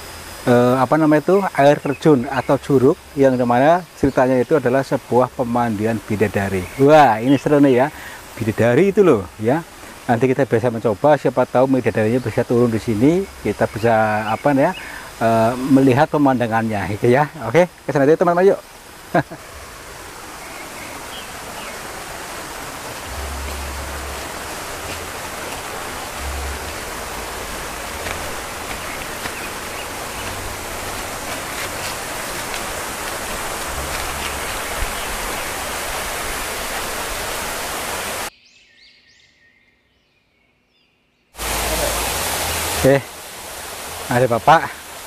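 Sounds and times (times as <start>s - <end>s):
water rushing: 0.0s - 38.3s, 41.4s - 45.0s
low rumbles: 19.4s - 35.8s.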